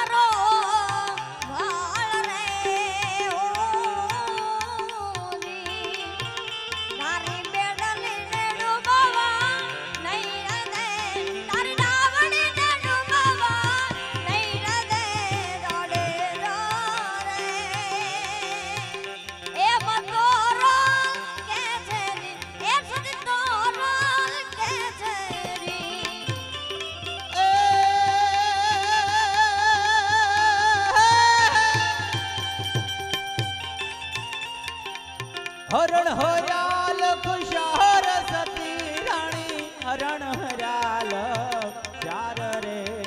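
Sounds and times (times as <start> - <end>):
devotional folk singing: 0.0 - 33.0, 35.1 - 43.0
hand drum beat: 21.5 - 26.8, 30.9 - 34.4.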